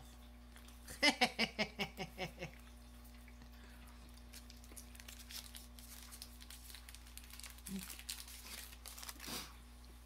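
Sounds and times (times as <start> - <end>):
woman laughing: 0.9 - 2.6
wrapper crinkling: 4.2 - 9.6.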